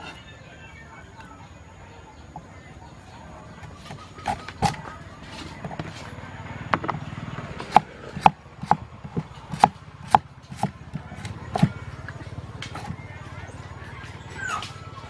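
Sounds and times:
cleaver chopping on wooden board: 3.9 - 4.8, 6.8 - 11.8, 12.7 - 13.0.

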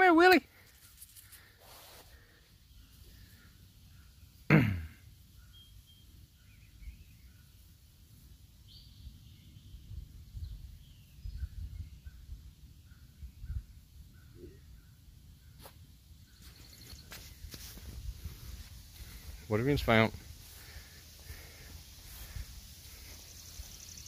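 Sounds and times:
faint bird calls: 1.2 - 4.5, 11.2 - 17.4, 19.0 - 24.0.

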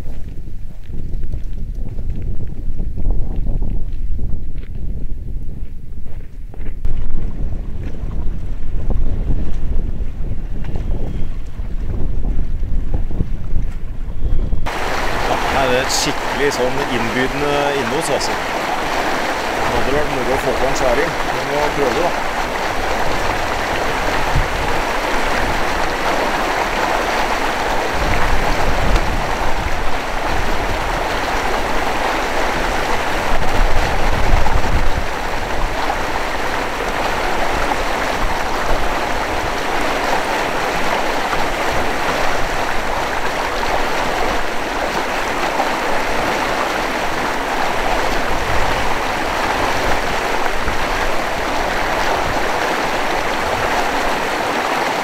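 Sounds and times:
fast-flowing water rushing: 14.7 - 55.0.

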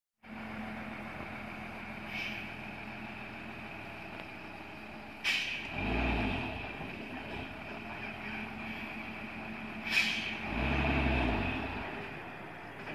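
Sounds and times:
truck engine rumbling: 0.2 - 12.9
air brake hiss: 2.0 - 2.6, 5.2 - 5.7, 9.8 - 10.4.

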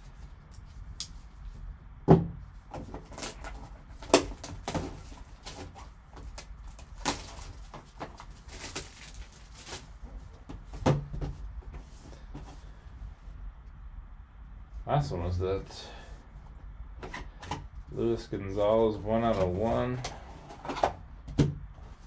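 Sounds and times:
cardboard box rustling and scraping: 2.8 - 12.8, 18.8 - 21.0.

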